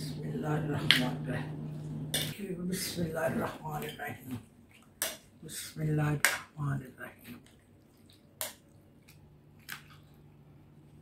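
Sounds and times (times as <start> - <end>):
spoon mixing wet food: 0.7 - 11.0.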